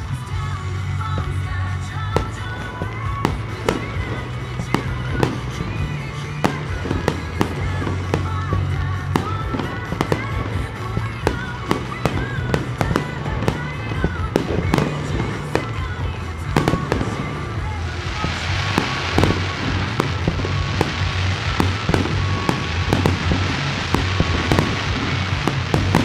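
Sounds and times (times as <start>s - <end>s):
music with steady bass line: 0.0s - 26.0s
firework shells bursting: 1.1s - 26.0s.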